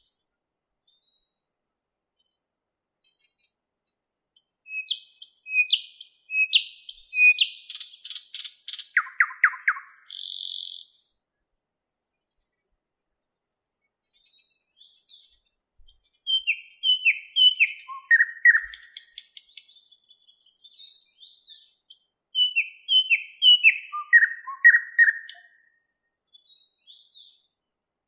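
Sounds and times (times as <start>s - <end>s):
nightingale singing: 0.0s - 1.5s, 3.0s - 27.6s.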